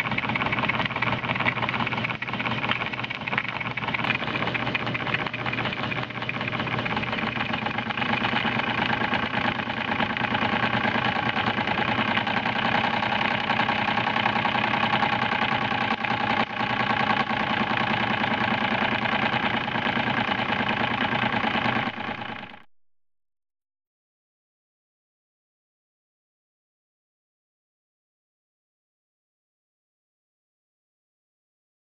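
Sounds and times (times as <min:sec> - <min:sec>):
model steam engine chugging: 0:00.0 - 0:22.7.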